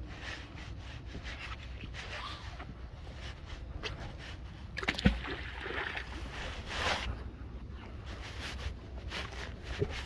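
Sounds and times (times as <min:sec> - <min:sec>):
cloth rubbing over microphone: 0:06.2 - 0:07.3.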